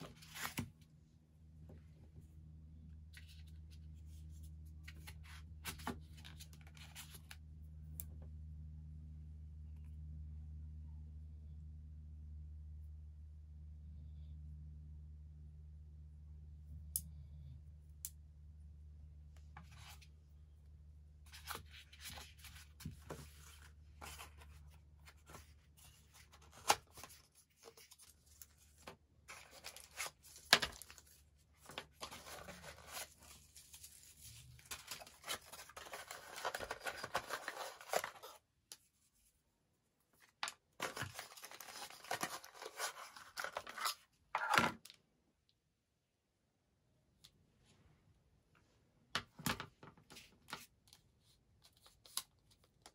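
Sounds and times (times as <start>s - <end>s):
packaging rustling and tearing: 21.4s - 38.4s, 40.8s - 44.0s.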